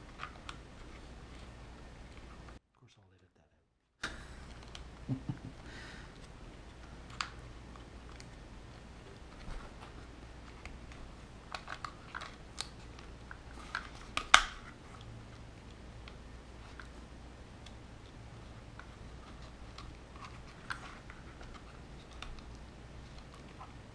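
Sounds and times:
plastic snap: 11.5s - 14.6s.

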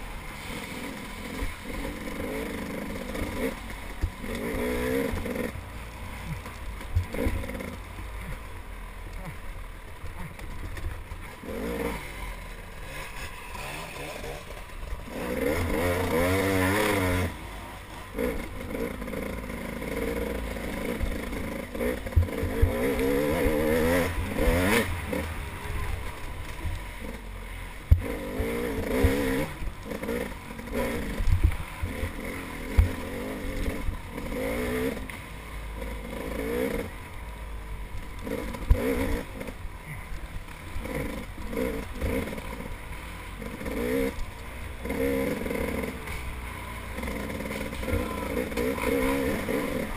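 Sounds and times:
bike clattering over ruts: 0.0s - 49.9s
dirt bike engine revving: 0.0s - 49.9s.

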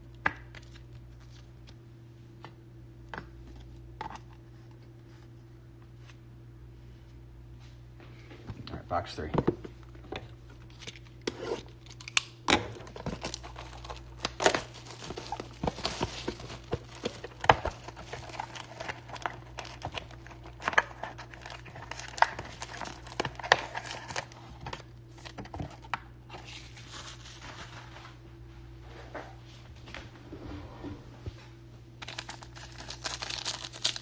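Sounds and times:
plastic wrap crinkling and tearing: 10.6s - 27.9s, 32.0s - 34.0s.

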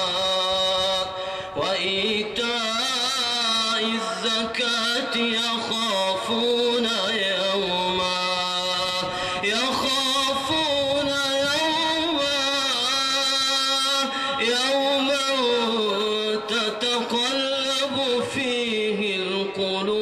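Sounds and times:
man chanting melodically: 0.0s - 20.0s.

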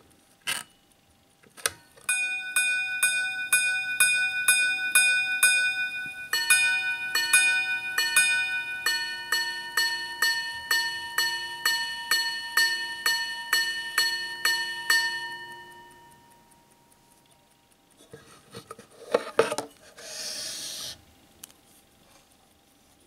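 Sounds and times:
watch striking gongs: 2.1s - 17.1s.

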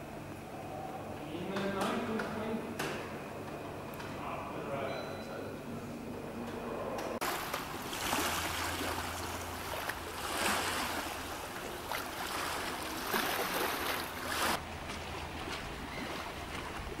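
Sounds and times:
wind: 0.0s - 17.0s
small waves at water's edge: 7.2s - 17.0s.

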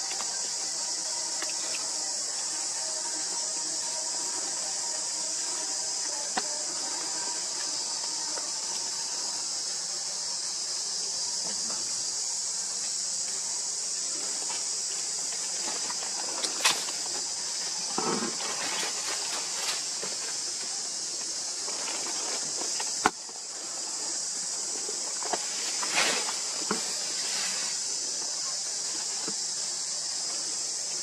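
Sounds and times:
high-pitched insect chorus: 0.0s - 31.0s
dry leaves rustling: 14.3s - 23.0s.

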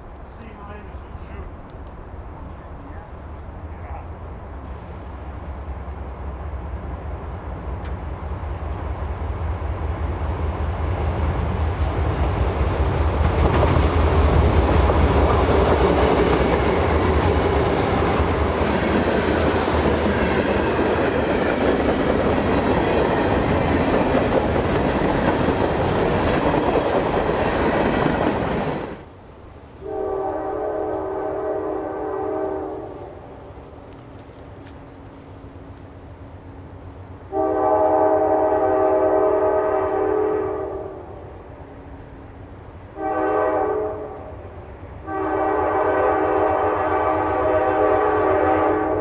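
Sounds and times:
diesel locomotive engine rumble: 0.0s - 49.0s.

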